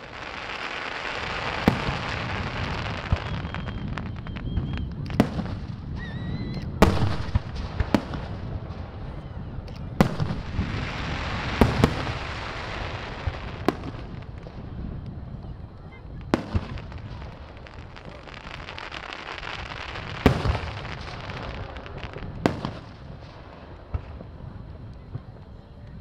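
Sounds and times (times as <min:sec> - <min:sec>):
fireworks crackling hiss: 0:00.0 - 0:26.0
firework shells bursting: 0:16.2 - 0:24.3.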